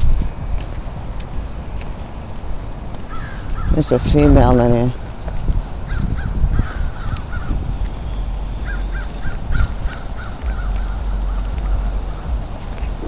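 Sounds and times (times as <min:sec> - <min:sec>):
steady low rumble: 0:00.0 - 0:13.0
crows cawing: 0:03.1 - 0:03.8, 0:05.0 - 0:07.6, 0:08.6 - 0:12.6.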